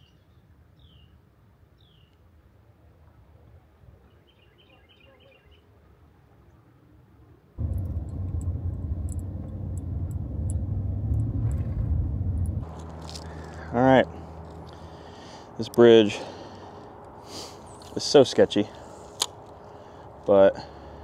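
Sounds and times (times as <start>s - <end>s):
faint bird chirps: 4.0s - 5.7s
loud steady low noise: 7.6s - 15.5s.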